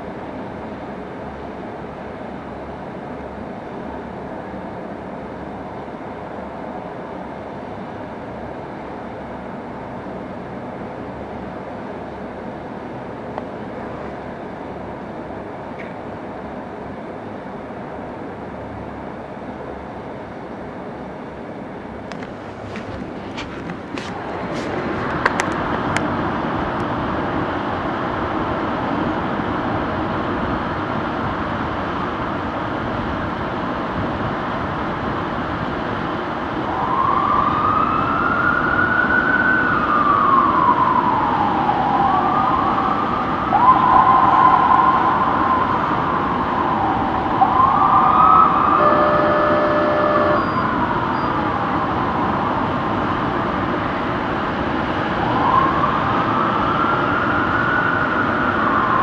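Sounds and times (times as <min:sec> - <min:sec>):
engine and street noise: 0:00.0 - 0:59.0
fire truck sirens wailing: 0:21.9 - 0:28.2, 0:36.3 - 0:59.0
short horn blast: 0:48.8 - 0:50.8.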